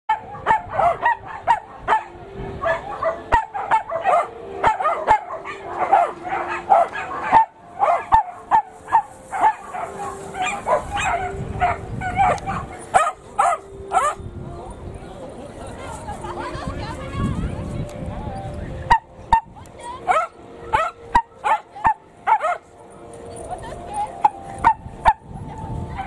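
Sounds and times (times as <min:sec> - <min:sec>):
dogs barking and yipping: 0:00.1 - 0:14.3, 0:18.4 - 0:26.0.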